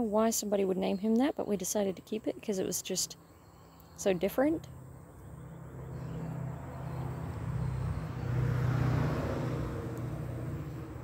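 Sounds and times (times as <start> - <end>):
vehicle engine passing by: 5.2 - 11.0.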